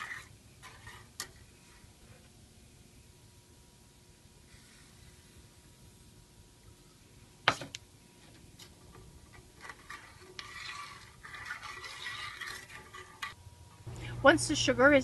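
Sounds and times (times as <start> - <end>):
spoon scraping a metal pan: 0.0 - 1.9, 8.9 - 13.4.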